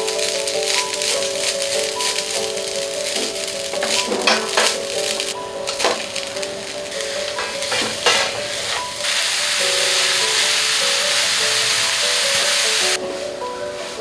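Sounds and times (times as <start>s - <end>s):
loud sizzling hiss: 0.0s - 14.0s
soft background music: 0.0s - 14.0s
spatula scraping in a pan: 5.7s - 12.6s.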